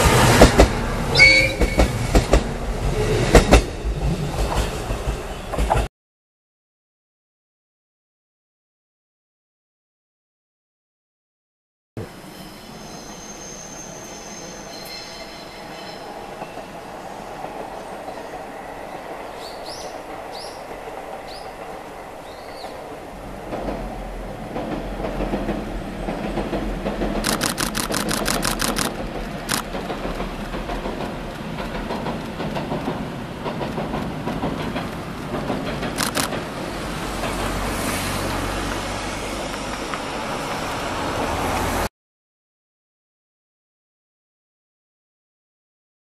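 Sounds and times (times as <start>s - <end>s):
train rumbling across bridge: 0.0s - 5.9s, 12.0s - 41.9s
bird chirps: 12.3s - 18.3s
sharp clicks: 27.2s - 30.3s, 36.0s - 36.4s.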